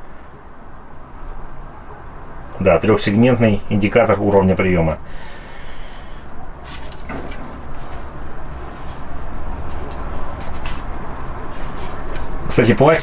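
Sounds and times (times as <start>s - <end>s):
steady low hum: 0.0s - 13.0s
plastic handling knocks and rubs: 6.7s - 12.5s.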